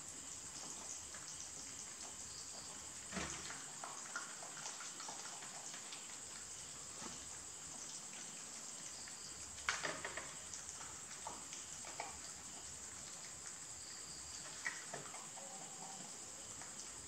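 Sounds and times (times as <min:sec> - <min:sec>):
steady background hiss: 0:00.0 - 0:17.0.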